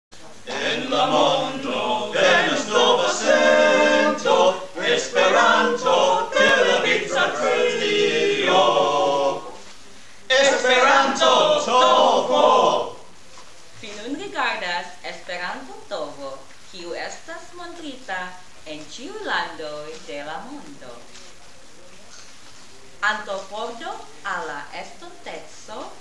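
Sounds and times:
group singing in unison: 0.4 - 9.7, 10.3 - 13.1.

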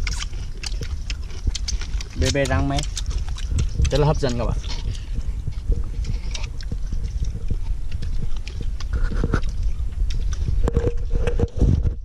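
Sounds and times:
chewing and crunching: 0.0 - 12.0
steady low rumble: 0.0 - 12.0.

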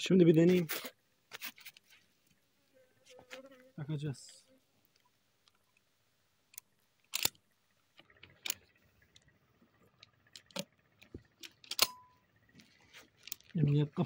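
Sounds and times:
shotgun metal parts clacking: 6.5 - 7.4, 9.9 - 12.2, 13.0 - 13.8
short metallic ring: 11.7 - 12.3.

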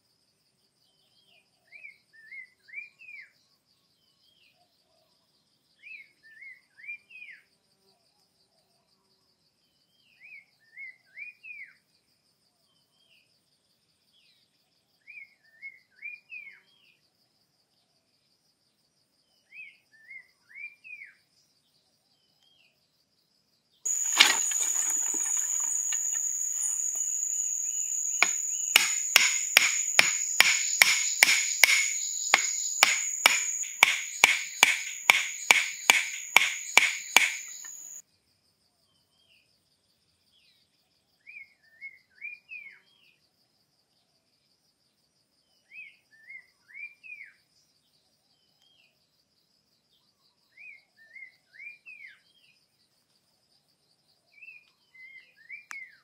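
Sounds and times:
bird chirping calls: 23.9 - 38.0
high insect drone: 23.9 - 38.0
sharp knocks on bamboo: 23.9 - 38.0.

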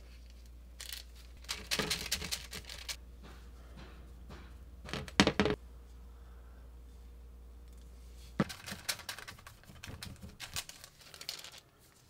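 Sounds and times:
knock and rustle: 3.2 - 5.6.

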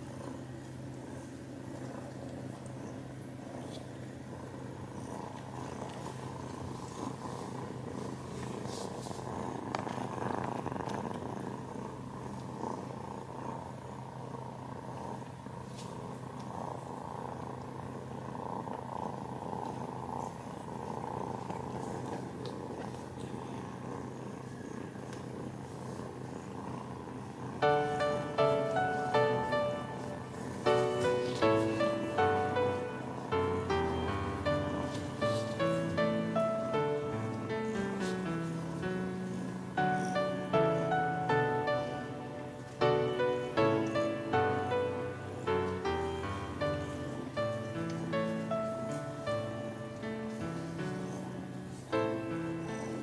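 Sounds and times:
cats purring: 0.0 - 53.0
music: 27.6 - 53.0.

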